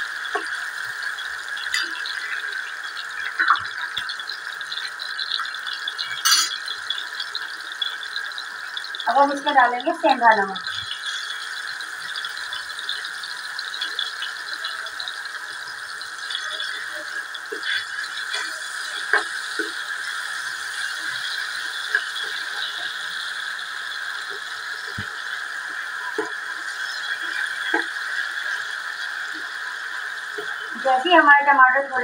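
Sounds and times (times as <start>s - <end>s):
food sizzling in hot oil: 0.0s - 32.0s
spoon knocking against pan: 6.2s - 6.6s.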